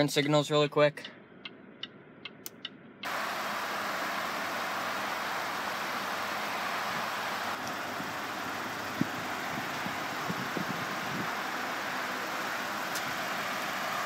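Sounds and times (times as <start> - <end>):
turn signal ticking: 1.0 - 3.2
wind hiss on microphone: 6.8 - 11.8.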